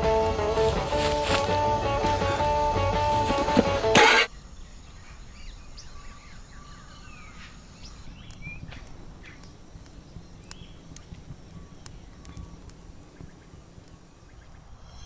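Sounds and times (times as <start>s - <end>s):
music: 0.0s - 4.3s.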